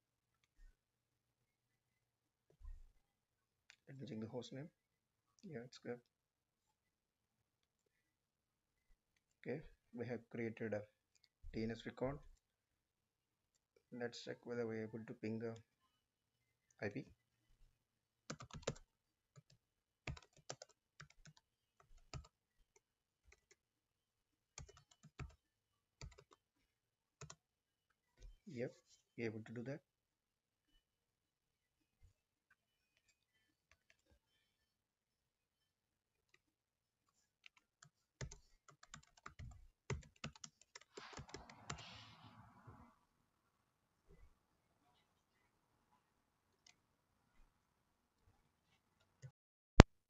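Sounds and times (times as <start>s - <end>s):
faint keyboard typing: 18.3s - 23.6s, 24.6s - 25.4s, 26.0s - 26.4s, 27.2s - 27.4s, 33.0s - 34.3s, 37.1s - 42.2s.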